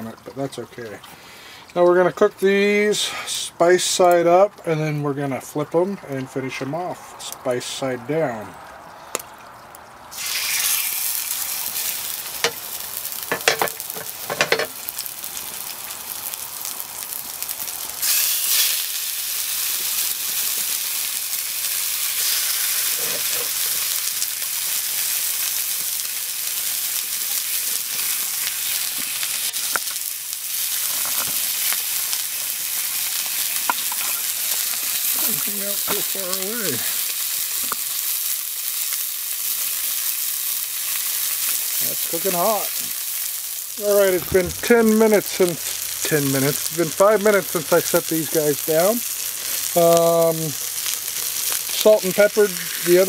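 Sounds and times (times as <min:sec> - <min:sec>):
meat sizzling in hot oil: 0:10.1 - 0:53.0.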